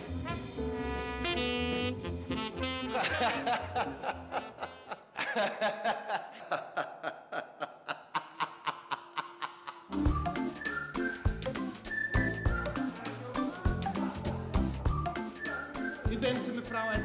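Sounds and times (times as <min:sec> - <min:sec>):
background music: 0:00.0 - 0:05.1, 0:09.9 - 0:17.0
man laughing heartily: 0:02.9 - 0:10.0.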